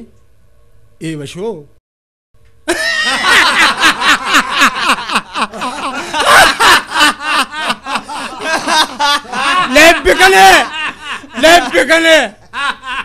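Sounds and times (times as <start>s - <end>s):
men laughing loudly: 2.7s - 13.0s.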